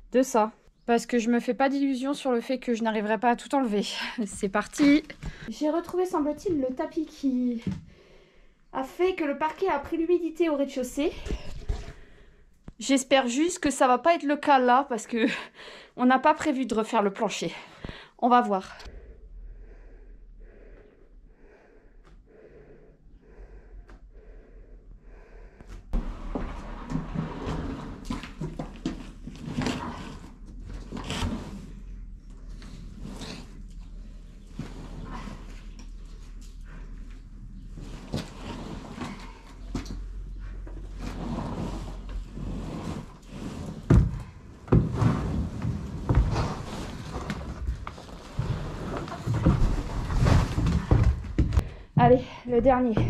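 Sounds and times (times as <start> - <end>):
heavy rhythmic breathing: 17.6 - 26.0, 46.1 - 53.0
floor covering scraping and rustling: 25.9 - 36.6, 37.6 - 39.9, 40.8 - 51.6.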